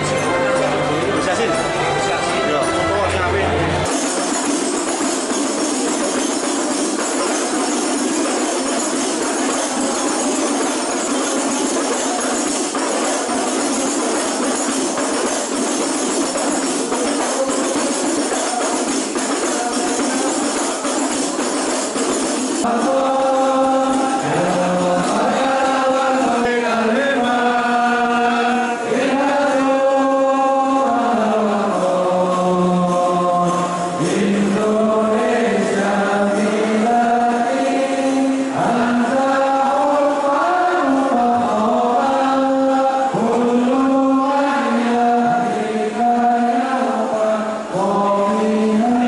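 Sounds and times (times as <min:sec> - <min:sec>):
frame drums with jingles: 0:03.8 - 0:49.0
voices chanting together: 0:22.6 - 0:49.0.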